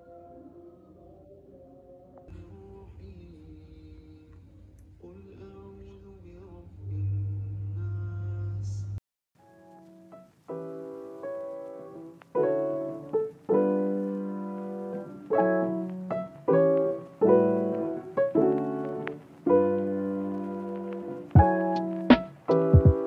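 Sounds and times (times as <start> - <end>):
gentle solo piano: 9.5 - 23.0.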